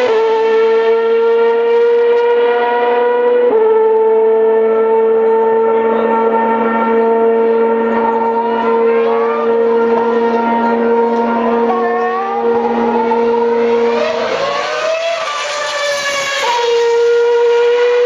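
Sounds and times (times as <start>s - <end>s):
racing car engine whining: 0.0s - 18.0s.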